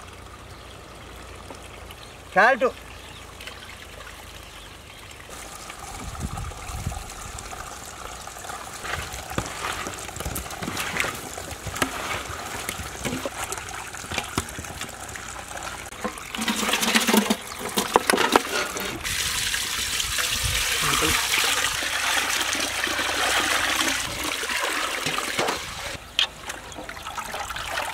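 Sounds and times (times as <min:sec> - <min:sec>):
water pouring into a steel pot: 0:05.3 - 0:26.0
hands mixing wet fish pieces: 0:08.2 - 0:19.0.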